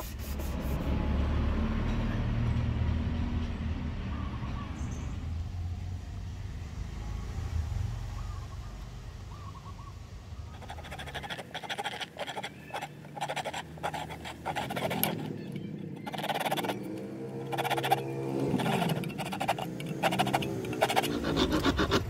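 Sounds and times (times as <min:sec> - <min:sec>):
hand saw cutting wood: 0:10.6 - 0:15.4, 0:16.0 - 0:22.0.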